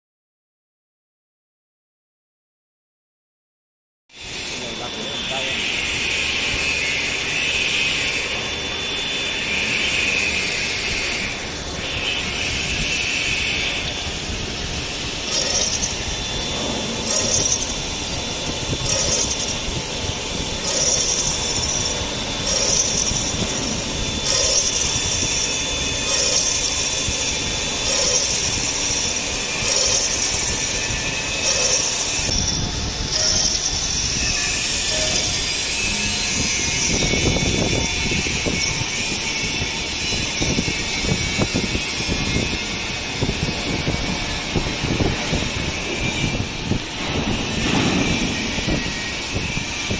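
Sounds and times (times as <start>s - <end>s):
machine mechanical clatter: 11.2s - 49.9s.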